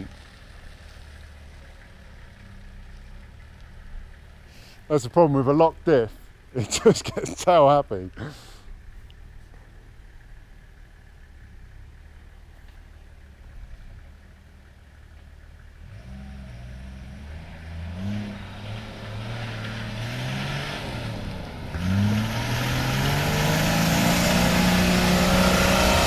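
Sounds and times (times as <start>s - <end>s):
engine revving: 15.8s - 26.0s.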